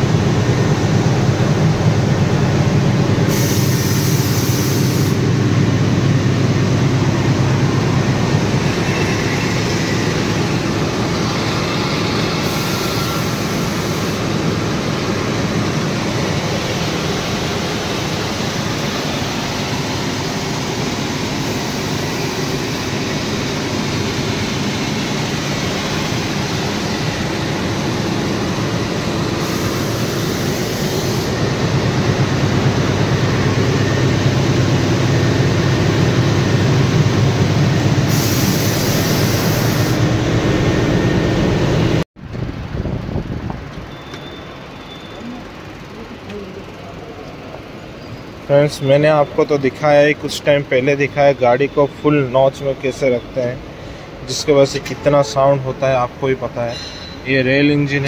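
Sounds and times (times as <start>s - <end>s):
locomotive diesel engine drone: 0.0s - 58.0s
hiss: 3.2s - 5.4s, 11.2s - 31.6s, 38.0s - 40.1s.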